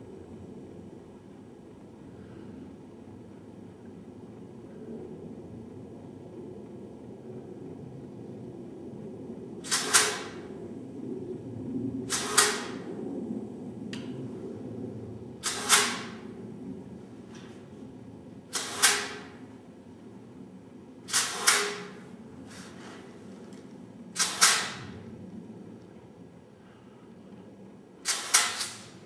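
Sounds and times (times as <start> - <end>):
low workshop hum: 0.0 - 29.0
compressed air hissing blasts: 9.6 - 10.4, 12.1 - 12.8, 15.4 - 16.2, 18.5 - 19.4, 21.1 - 22.9, 24.2 - 24.8, 28.0 - 29.0.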